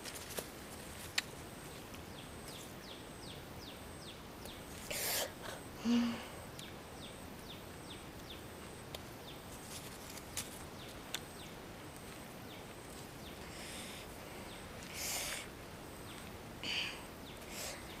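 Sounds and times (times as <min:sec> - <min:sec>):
small bird chirping: 0:01.7 - 0:05.4.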